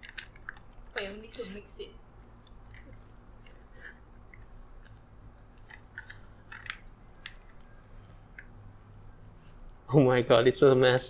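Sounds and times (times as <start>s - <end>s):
faint low hum: 0.0s - 11.0s
salad rustling and squishing: 2.0s - 9.8s.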